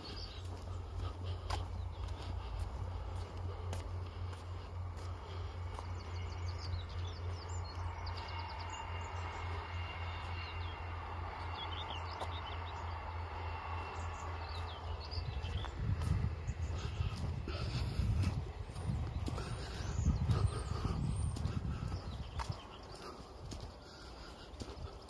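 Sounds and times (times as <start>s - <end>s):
low rumble: 0.0s - 25.0s
small birds chirping: 0.0s - 25.0s.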